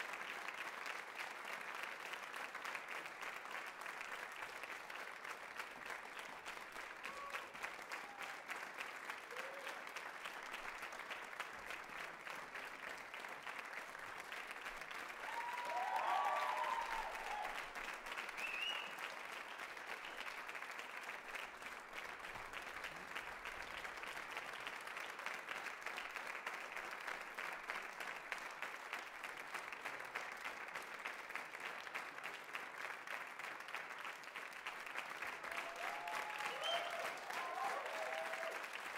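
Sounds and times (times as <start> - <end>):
audience applauding: 0.0 - 38.9
people cheering: 6.9 - 10.5, 14.6 - 20.2, 35.1 - 38.9.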